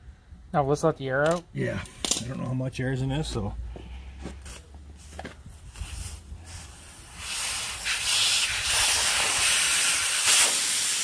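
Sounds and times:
air hissing out of tire valve: 5.5 - 11.0.

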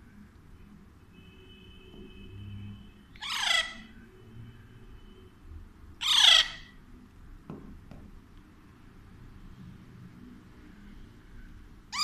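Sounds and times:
parakeet harsh squawks: 2.9 - 4.0, 6.0 - 6.8.

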